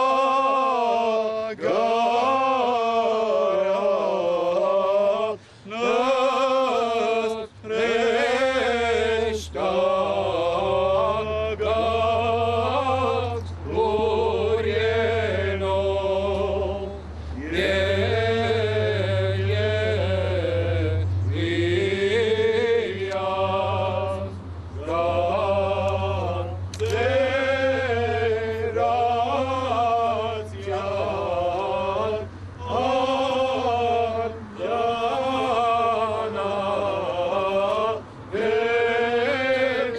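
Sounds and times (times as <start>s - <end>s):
men chanting a hymn: 0.0s - 39.9s
singer breaths: 5.4s - 5.7s, 17.0s - 17.4s.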